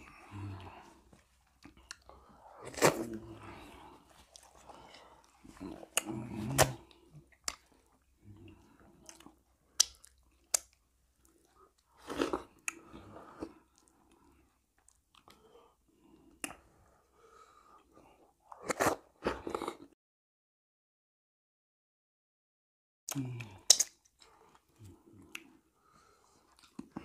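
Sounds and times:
wet chewing and mouth sounds: 0.0 - 15.4, 16.3 - 16.6, 23.1 - 25.6, 26.3 - 27.0.

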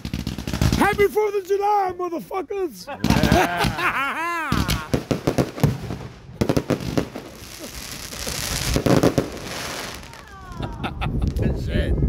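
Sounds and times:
fireworks bursting: 0.0 - 1.5, 3.0 - 11.4
fireworks crackling: 0.0 - 1.7, 3.0 - 3.9, 4.5 - 11.5.

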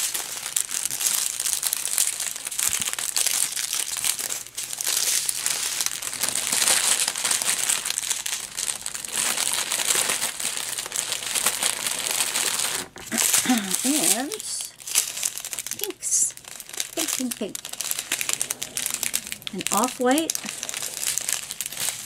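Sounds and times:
plastic zip bags crinkling: 0.0 - 22.0.

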